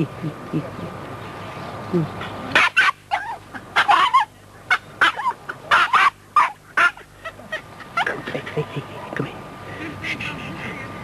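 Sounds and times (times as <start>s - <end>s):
dogs barking and yapping: 2.5s - 8.6s.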